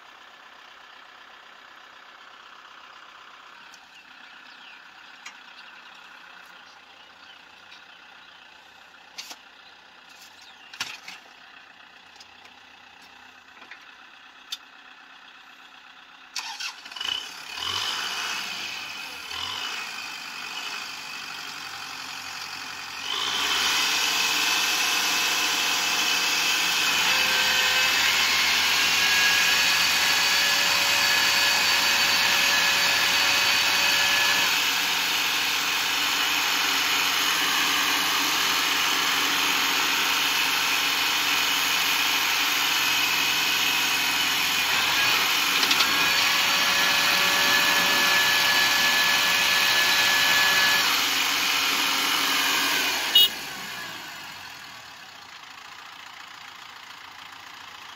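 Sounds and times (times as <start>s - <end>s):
tractor diesel engine revving: 14.0s - 57.8s.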